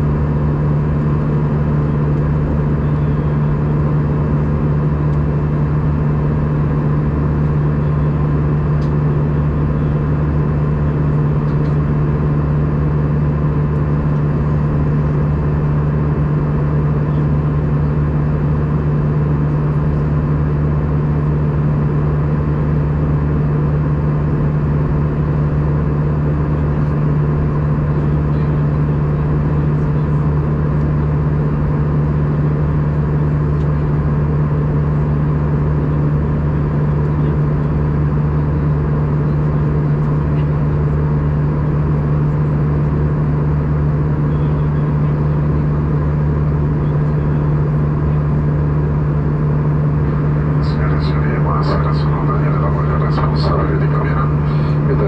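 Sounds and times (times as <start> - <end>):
airplane engine hum: 0.0 - 55.0
cabin airflow noise: 23.9 - 55.0.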